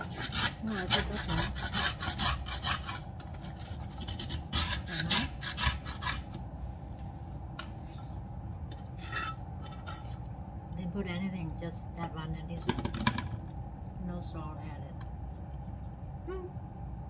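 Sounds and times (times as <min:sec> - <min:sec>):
metal fork scraping ceramic bowl: 0:08.8 - 0:10.2.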